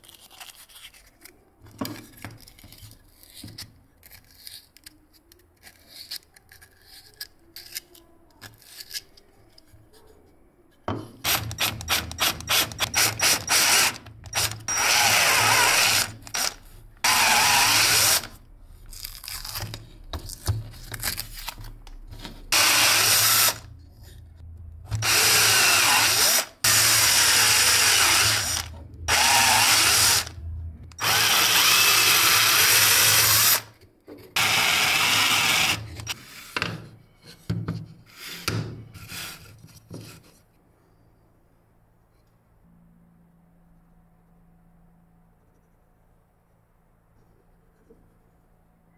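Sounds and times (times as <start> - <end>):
power drill boring into wood: 11.3 - 18.4, 22.5 - 23.7, 25.0 - 30.4, 31.0 - 33.7, 34.4 - 36.2.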